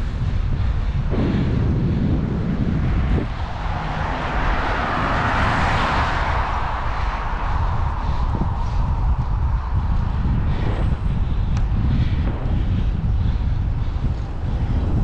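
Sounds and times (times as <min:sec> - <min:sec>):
wind rumbling on microphone: 0:00.0 - 0:15.0
car passing: 0:01.1 - 0:11.4.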